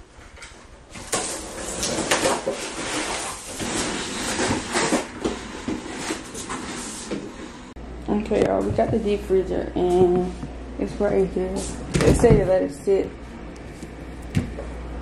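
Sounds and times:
rustling of packing: 0.9s - 7.2s
freezer cabinet scraping and knocks: 12.0s - 12.6s.

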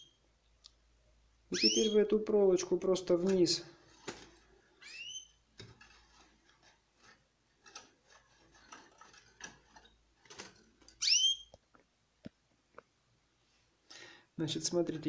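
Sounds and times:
canary chirping: 0.0s - 0.2s, 1.5s - 3.6s, 4.6s - 6.3s, 7.6s - 11.6s
wire bending against cage bars: 3.1s - 11.5s.

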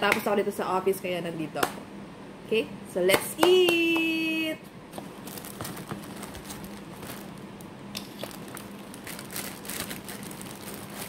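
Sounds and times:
plastic bag crinkling: 5.0s - 11.0s.

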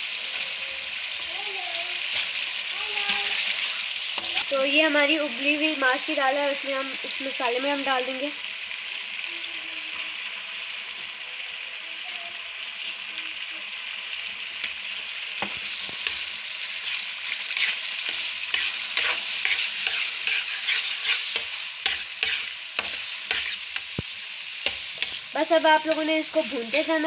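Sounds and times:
food sizzling in hot oil: 0.0s - 27.0s
spatula scraping a pan: 15.4s - 24.0s, 24.6s - 27.0s.

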